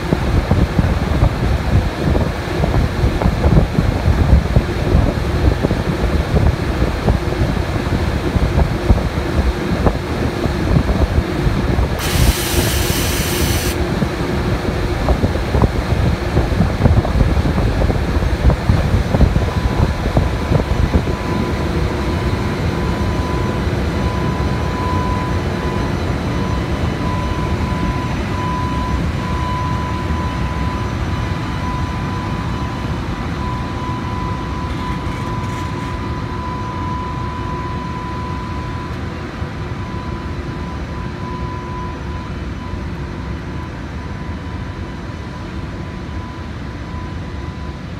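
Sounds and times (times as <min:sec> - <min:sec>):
steady high whine: 0:00.0 - 0:47.9
burst of hiss: 0:12.0 - 0:13.8
locomotive running gear rumbling: 0:34.2 - 0:36.6.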